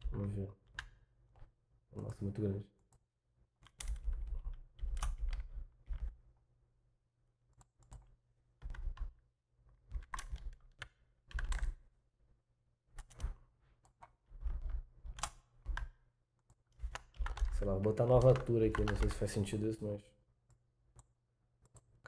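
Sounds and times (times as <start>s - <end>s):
computer keyboard typing: 3.6s - 6.2s, 9.9s - 11.8s, 13.0s - 19.6s.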